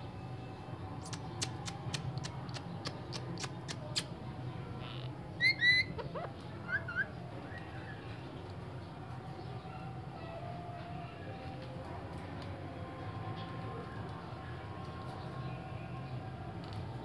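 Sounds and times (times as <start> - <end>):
sharp clicks: 1.0 - 4.1
parakeet squawking: 5.4 - 7.1
bird chirps: 5.4 - 8.0.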